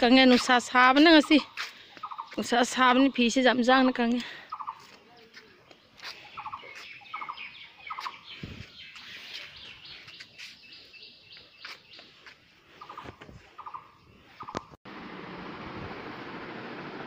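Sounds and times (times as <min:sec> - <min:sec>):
birds chirping: 0:00.0 - 0:14.8.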